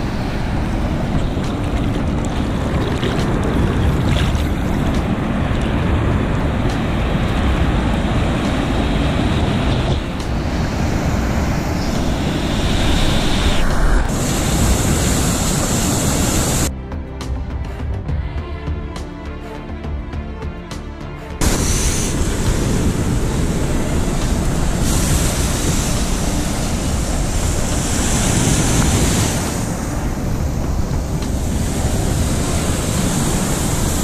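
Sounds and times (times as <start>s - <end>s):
water sloshing: 0.0s - 5.7s
ocean surf breaking: 0.0s - 16.7s, 21.4s - 34.0s
wind on microphone: 0.0s - 16.7s, 21.4s - 34.0s.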